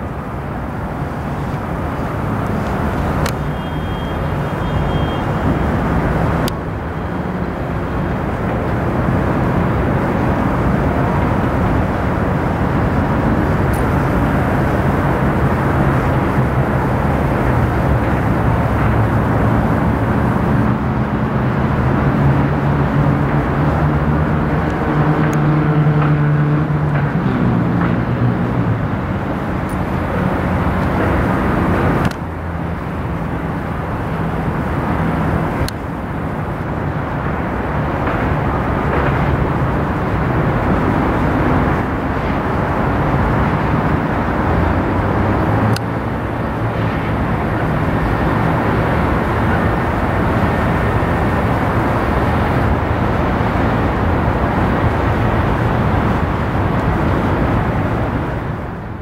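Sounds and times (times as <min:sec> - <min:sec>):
outdoor rumble and hiss: 0:00.0 - 0:59.0.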